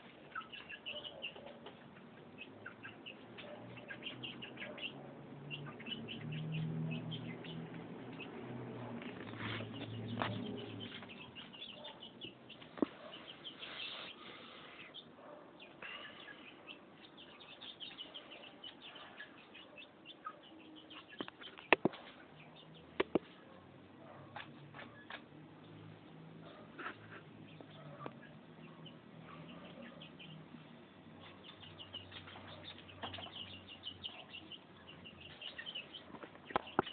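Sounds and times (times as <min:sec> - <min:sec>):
chicks peeping: 0:00.0 - 0:36.9.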